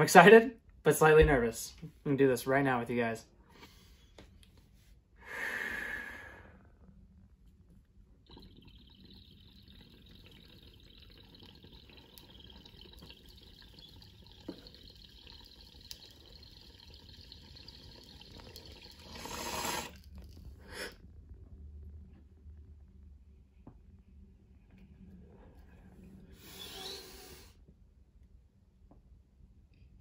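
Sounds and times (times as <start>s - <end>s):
water bubbling in a bong: 8.2s - 20.6s.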